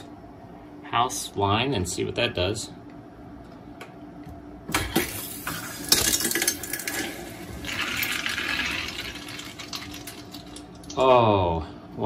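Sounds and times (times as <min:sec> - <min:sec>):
water rushing through pipes: 0:06.6 - 0:10.7.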